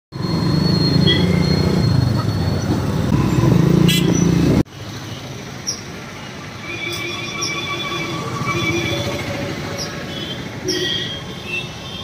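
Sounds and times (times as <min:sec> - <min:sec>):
quiet street noise: 0:00.1 - 0:12.0
road traffic: 0:00.1 - 0:12.0
car horns tooting: 0:06.6 - 0:12.0.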